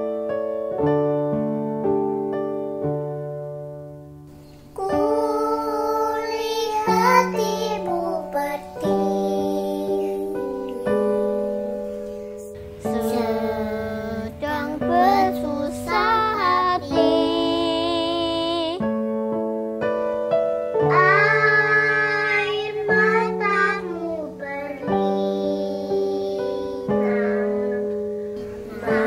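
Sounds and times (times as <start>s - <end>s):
piano accompaniment: 0.0s - 29.0s
children singing: 4.8s - 18.4s, 20.8s - 29.0s.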